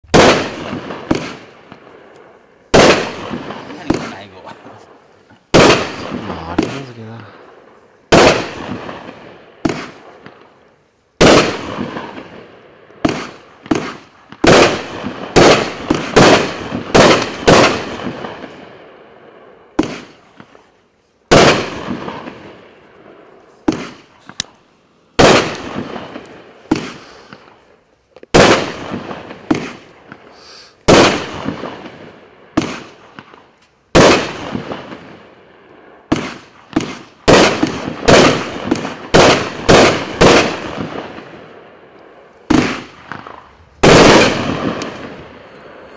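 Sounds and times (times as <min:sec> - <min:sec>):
firework bangs with echo: 0:00.0 - 0:10.6, 0:11.2 - 0:20.7, 0:21.3 - 0:27.7, 0:28.3 - 0:45.9.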